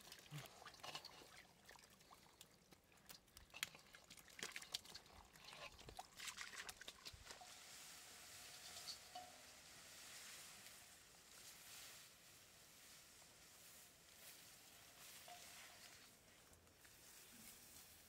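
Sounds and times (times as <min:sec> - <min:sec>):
splashing in muddy water: 0:00.0 - 0:07.4
steady faint hiss: 0:07.4 - 0:18.0.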